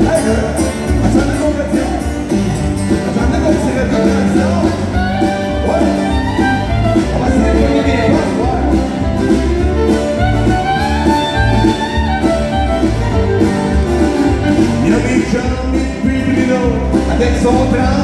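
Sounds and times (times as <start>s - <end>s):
man singing: 0.0s - 9.1s, 14.5s - 18.0s
acoustic guitars strumming: 0.0s - 18.0s
fiddle playing: 1.5s - 16.8s.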